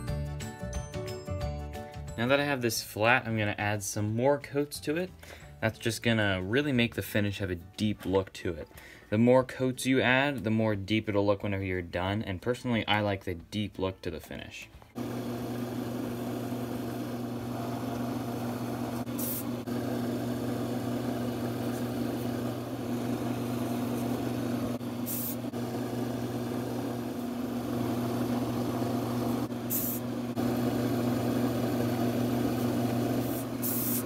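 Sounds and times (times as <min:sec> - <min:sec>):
wood lathe motor hum: 0:15.0 - 0:33.6
aerosol spray hisses: 0:19.0 - 0:19.6, 0:25.0 - 0:25.5, 0:29.7 - 0:30.0, 0:33.2 - 0:34.0.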